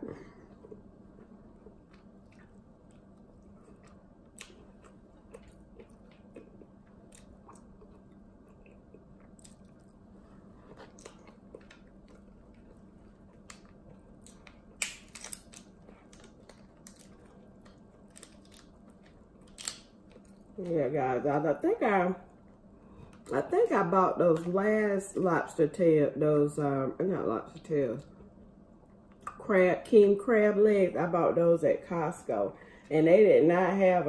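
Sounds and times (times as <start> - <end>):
soft chewing: 0.0 - 20.6
steady low hum: 0.0 - 34.0
crackle: 10.6 - 20.4.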